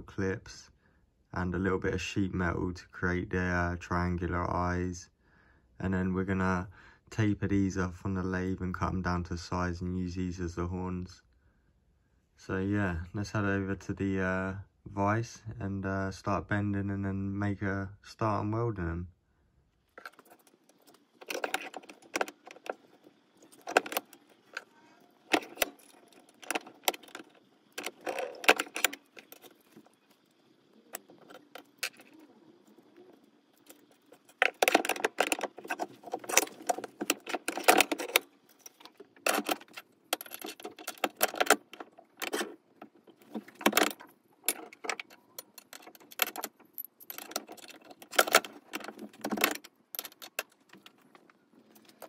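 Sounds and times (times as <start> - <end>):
steel parts clinking and rattling: 19.9 - 52.0.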